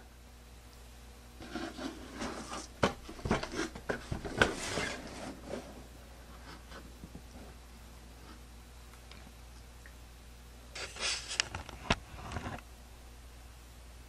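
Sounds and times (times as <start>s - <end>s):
cardboard rubbing and scraping: 1.4s - 7.6s.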